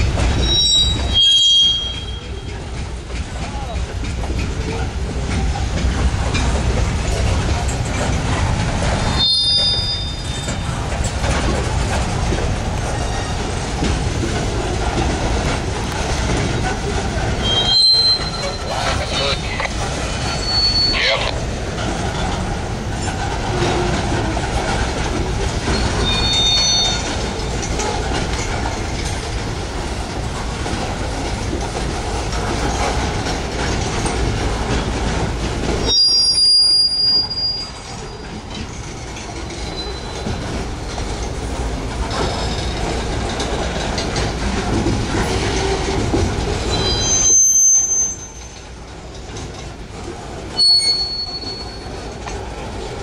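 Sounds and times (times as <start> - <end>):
train wheels rumbling on rail: 0.0 - 53.0
high-pitched wheel squeals: 0.4 - 2.4, 9.1 - 10.6, 17.4 - 19.4, 20.3 - 21.3, 25.7 - 27.1, 35.8 - 37.9, 46.7 - 48.6, 50.6 - 51.9.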